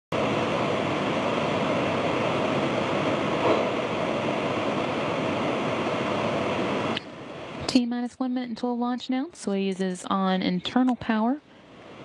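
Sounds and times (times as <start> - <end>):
steady rushing noise: 0.1 - 7.7.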